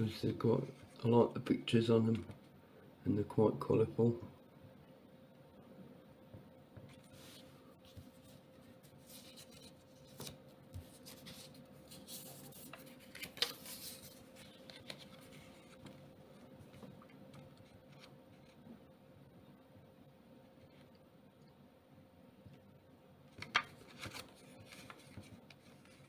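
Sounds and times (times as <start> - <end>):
faint steady hum: 0.0 - 26.0
banknotes rustling and clicking: 9.0 - 16.0, 23.4 - 26.0.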